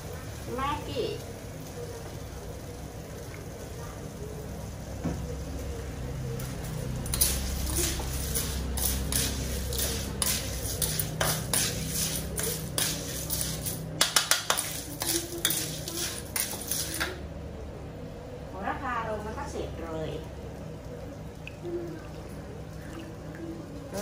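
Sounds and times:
metal ladle scraping in wok: 0:07.1 - 0:17.2.

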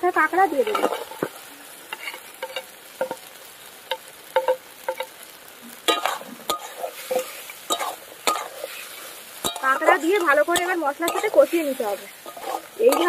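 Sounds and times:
crab sizzling in pan: 0:00.0 - 0:13.0
wooden spatula scraping pan: 0:00.5 - 0:03.2, 0:05.9 - 0:13.0.

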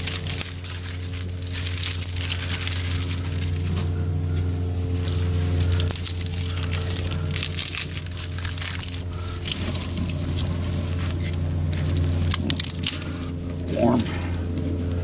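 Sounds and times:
fire crackling and snapping: 0:00.0 - 0:15.0
steady low hum: 0:00.0 - 0:15.0
twigs being broken: 0:00.0 - 0:15.0.

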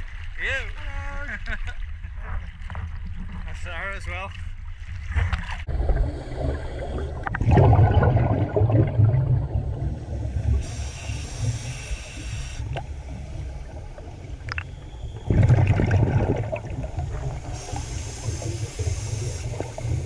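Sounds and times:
low rumble: 0:01.2 - 0:10.9
exhaled bubbles underwater: 0:05.0 - 0:20.0
hissing inhalation: 0:10.4 - 0:12.7, 0:17.4 - 0:20.0.

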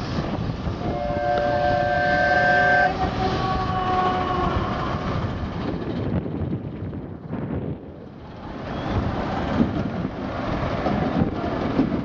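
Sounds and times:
wind: 0:00.0 - 0:12.0
miniature train horn blasts: 0:00.8 - 0:04.6.

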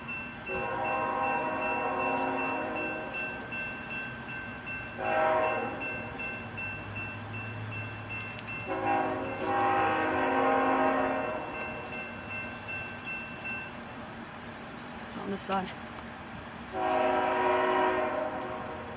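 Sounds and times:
crossing signal bells dinging: 0:00.0 - 0:15.9
locomotive air horn blasts: 0:00.5 - 0:03.1, 0:05.0 - 0:05.8, 0:08.7 - 0:11.5, 0:16.7 - 0:18.9.

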